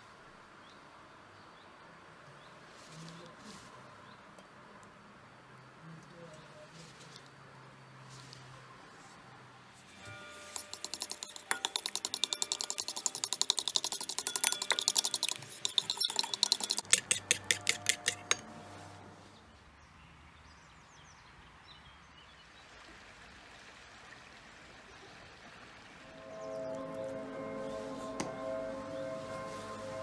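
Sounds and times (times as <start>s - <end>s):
metal spoon clinking on bowl: 10.4s - 18.5s.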